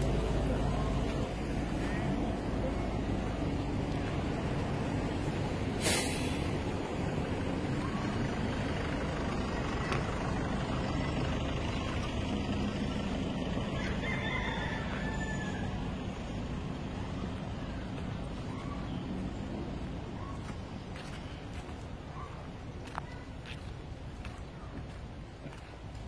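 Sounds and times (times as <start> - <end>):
vehicle engines rumbling: 0.0 - 26.0
short sharp hiss: 5.8 - 6.5.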